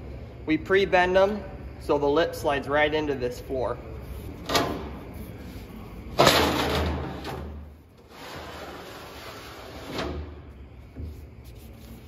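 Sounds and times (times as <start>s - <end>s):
steel plate scraping on steel: 8.0s - 10.2s.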